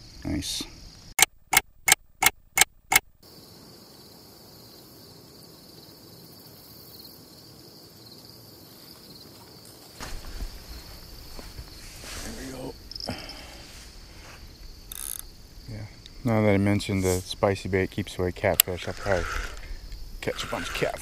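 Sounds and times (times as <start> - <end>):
crickets chirping: 0.0 - 21.0
clock ticking: 1.2 - 3.0.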